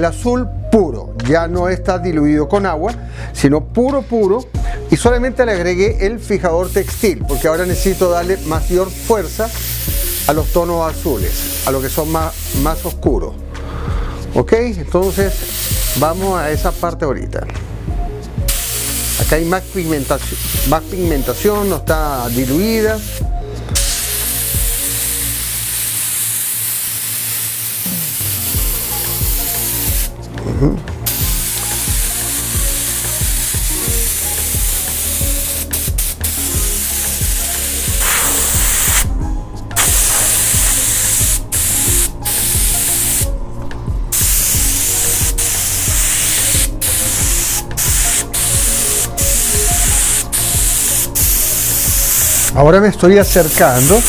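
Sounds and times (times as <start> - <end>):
background music: 0.0 - 54.0
airbrush hiss: 6.4 - 13.0, 15.0 - 17.0, 18.5 - 30.2, 31.0 - 39.1, 39.8 - 43.4, 44.1 - 52.6, 53.2 - 54.0.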